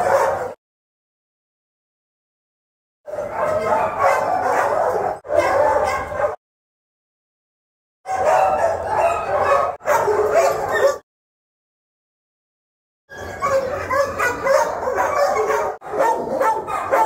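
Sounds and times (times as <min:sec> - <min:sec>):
dogs barking and howling: 0:00.0 - 0:00.6, 0:03.1 - 0:06.4, 0:08.1 - 0:11.0, 0:13.1 - 0:17.0.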